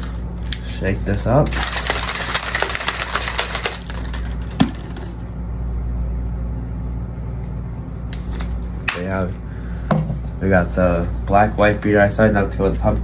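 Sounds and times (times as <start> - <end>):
plastic shaker bottle rattling: 1.5 - 5.1.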